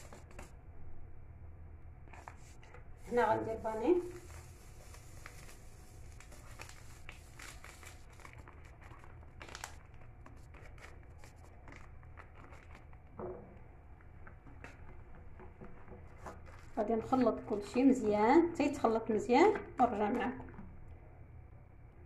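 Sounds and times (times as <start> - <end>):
paper sachet crinkling: 2.1 - 13.1, 15.6 - 18.0.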